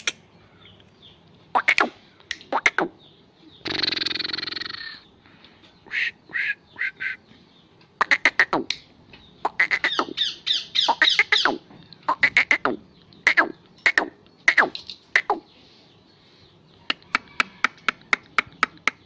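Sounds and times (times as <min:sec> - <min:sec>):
francolin squawking calls: 0:09.4 - 0:12.6.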